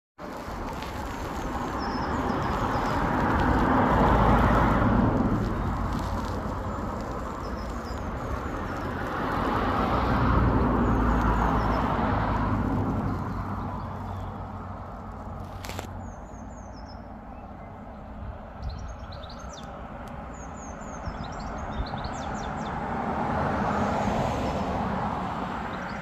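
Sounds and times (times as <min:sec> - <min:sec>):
steady rushing wind: 0:00.2 - 0:15.9.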